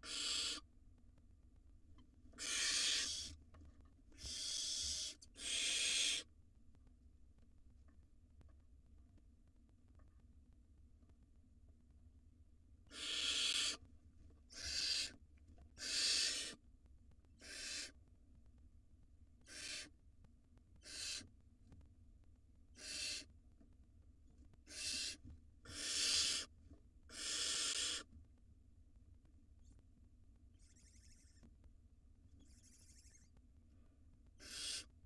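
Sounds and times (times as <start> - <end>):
owl nestlings hissing shrieks: 0.0 - 0.7, 2.3 - 3.4, 4.2 - 6.3, 12.9 - 13.8, 14.5 - 15.2, 15.8 - 16.6, 17.4 - 18.0, 19.5 - 19.9, 20.8 - 21.3, 22.8 - 23.3, 24.7 - 26.5, 27.1 - 28.1, 30.6 - 31.4, 32.4 - 33.3, 34.4 - 34.9.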